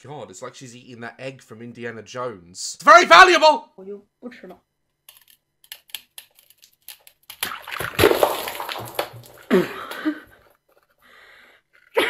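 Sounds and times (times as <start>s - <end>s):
liquid splashing: 7.3s - 10.1s.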